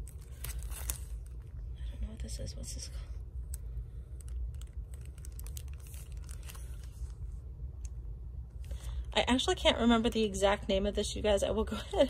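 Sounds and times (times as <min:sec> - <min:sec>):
plastic bag crinkling: 0:00.0 - 0:01.6, 0:04.2 - 0:07.2
steady low hum: 0:00.0 - 0:12.0.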